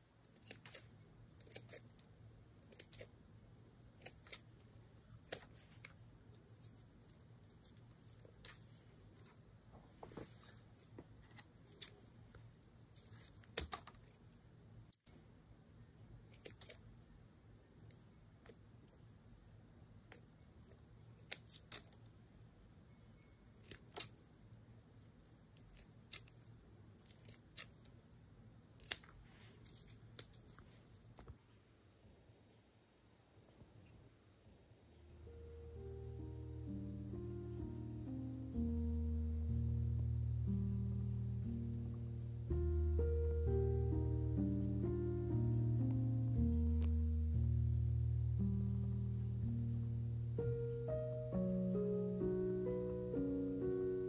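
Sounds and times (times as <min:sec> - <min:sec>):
scissors snipping stems: 0:00.4 - 0:01.9.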